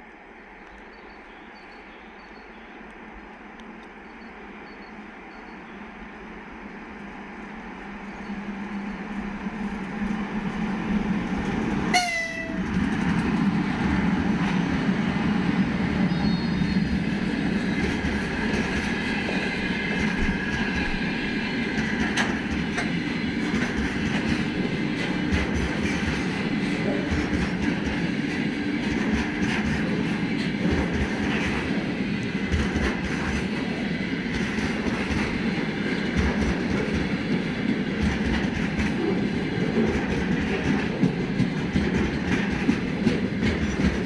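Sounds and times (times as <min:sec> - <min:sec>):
electric locomotive approaching: 0:00.0 - 0:44.0
train horn toot: 0:11.9 - 0:12.7.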